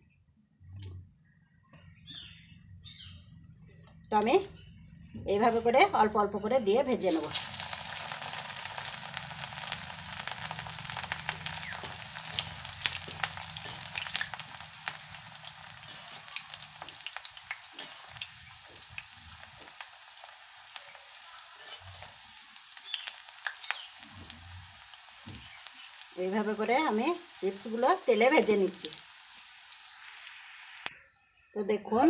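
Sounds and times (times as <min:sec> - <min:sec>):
deep-frying sizzle and pops: 0:07.0 - 0:31.1
metal spoon stirring in pan: 0:07.1 - 0:26.0.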